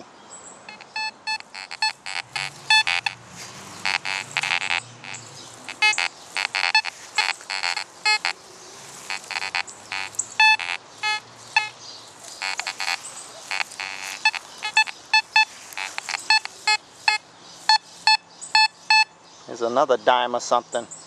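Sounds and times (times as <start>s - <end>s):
metal detector beeps: 0.7s - 3.2s, 3.8s - 8.4s, 9.1s - 11.8s, 12.4s - 19.1s.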